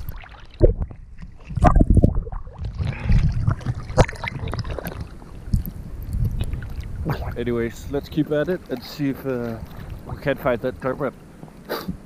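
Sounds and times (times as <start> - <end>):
sharp water splashes: 0.0 - 5.6
sea water lapping and splashing: 0.0 - 12.0
wind rumble on microphone: 0.0 - 12.0.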